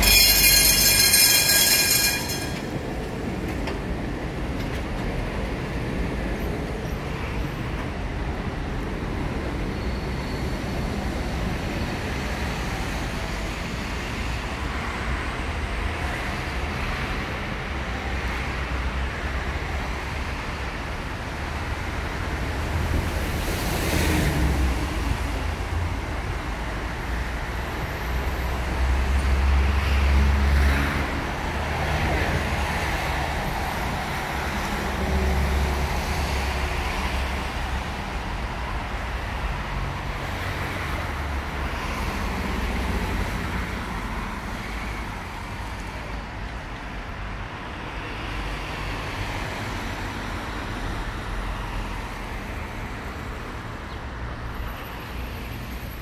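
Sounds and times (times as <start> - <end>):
street traffic: 0.0 - 56.0.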